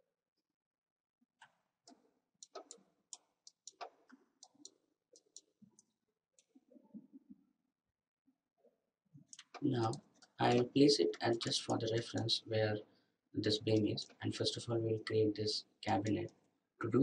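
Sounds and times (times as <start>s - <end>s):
computer mouse clicks: 1.4s - 6.6s, 9.3s - 10.8s.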